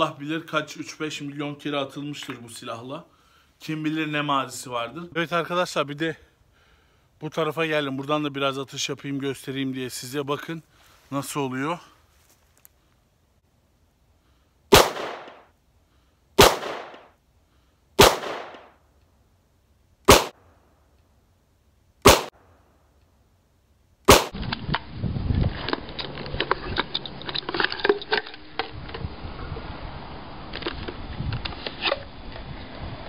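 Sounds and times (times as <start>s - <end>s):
rustling: 10.6s - 13.4s
pistol shots with echo: 14.7s - 15.4s, 16.4s - 17.1s, 18.0s - 18.7s, 20.1s - 20.4s, 22.1s - 22.3s, 24.1s - 24.4s.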